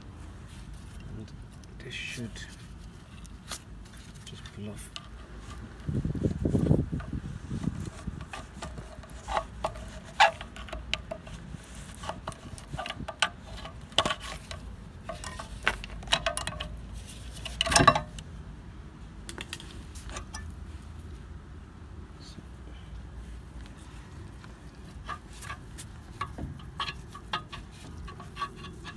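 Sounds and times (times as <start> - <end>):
metal clinks and scrapes: 0.8 - 18.2, 19.6 - 20.9, 24.6 - 28.9
metal clank: 17.4 - 18.2.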